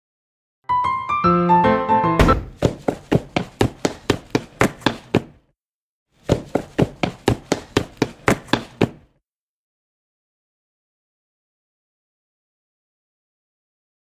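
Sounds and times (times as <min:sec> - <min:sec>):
quick evenly spaced thuds: 0:02.2 - 0:05.4, 0:06.2 - 0:09.1.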